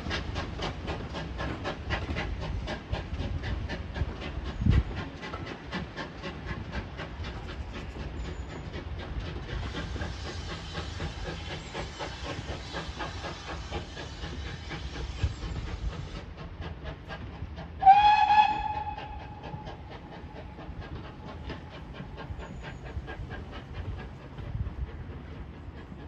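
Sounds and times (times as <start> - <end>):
steam hissing: 0.0 - 26.0
steam locomotive exhaust beats: 0.0 - 26.0
steam whistle: 17.8 - 19.7.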